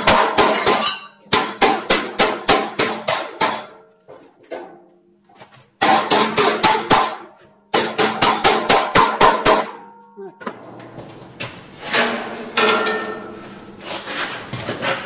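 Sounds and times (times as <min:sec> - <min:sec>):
hammer beating steel plate: 0:00.0 - 0:03.9, 0:05.8 - 0:10.9, 0:11.8 - 0:13.8
steel plate ringing: 0:00.1 - 0:01.3, 0:11.9 - 0:13.8.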